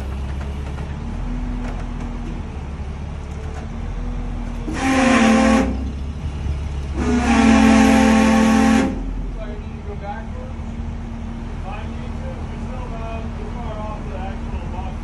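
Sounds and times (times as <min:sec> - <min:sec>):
low engine hum: 0:00.0 - 0:15.0
loud horn: 0:04.7 - 0:06.0, 0:06.9 - 0:09.2.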